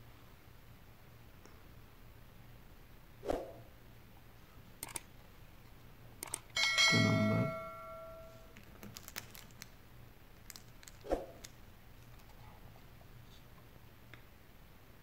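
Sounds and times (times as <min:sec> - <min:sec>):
metallic clank: 0:06.6 - 0:08.5.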